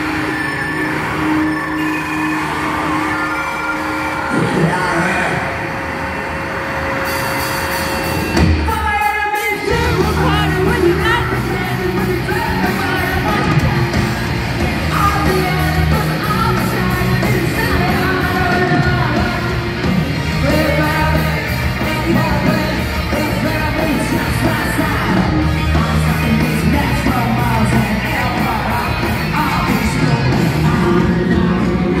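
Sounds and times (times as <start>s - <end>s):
live rock band playing: 0.0s - 32.0s
person singing: 8.6s - 13.8s, 14.8s - 19.8s, 20.4s - 32.0s.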